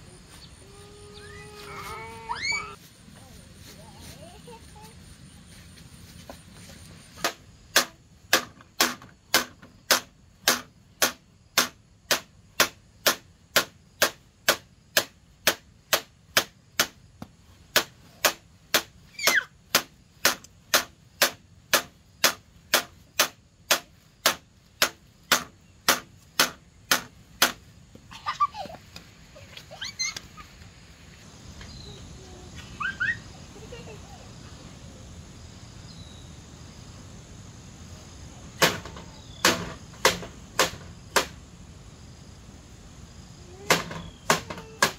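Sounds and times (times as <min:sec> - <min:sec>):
child crying out: 0:00.6 - 0:02.8, 0:19.1 - 0:19.5, 0:43.4 - 0:44.9
blade chopping bamboo: 0:07.2 - 0:17.0, 0:17.7 - 0:27.6, 0:38.6 - 0:41.4.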